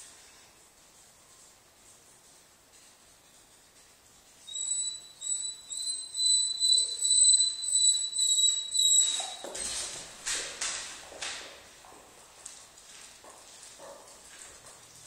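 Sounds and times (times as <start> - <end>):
dog whining: 4.5 - 9.5
dog claws clicking on floor: 8.4 - 15.0.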